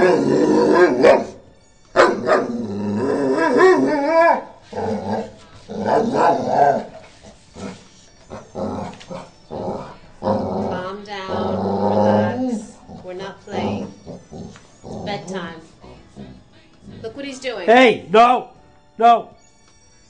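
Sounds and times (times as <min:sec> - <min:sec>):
dog grumbling and moaning: 0:00.0 - 0:01.4, 0:02.2 - 0:17.2.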